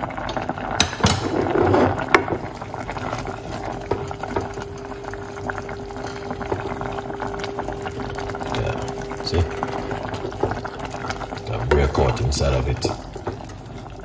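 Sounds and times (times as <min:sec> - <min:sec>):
pot bubbling at the boil: 0:00.0 - 0:14.0
wooden spoon stirring: 0:01.4 - 0:14.0
faint steady tone: 0:03.6 - 0:13.0.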